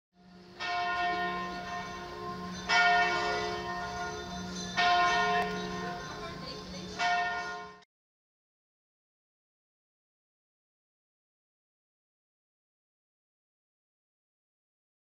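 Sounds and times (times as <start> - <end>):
bell tolling: 0.6 - 7.8.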